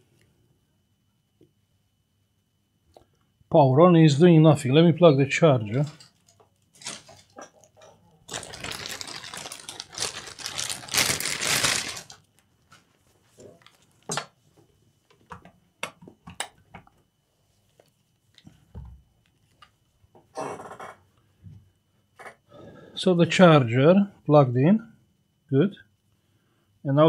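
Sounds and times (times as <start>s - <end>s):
rustling and rattling: 5.7s - 12.2s.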